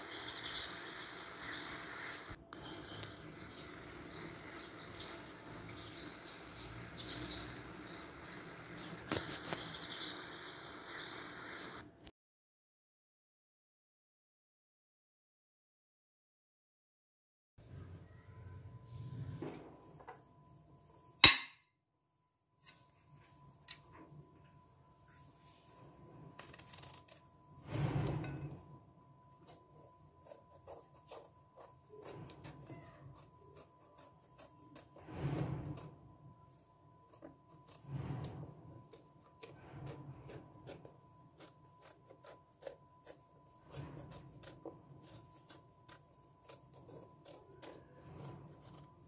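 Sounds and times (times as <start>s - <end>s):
knife scraping vegetable peel: 8.8s - 10.7s, 26.3s - 28.6s, 29.4s - 36.2s, 37.0s - 49.0s.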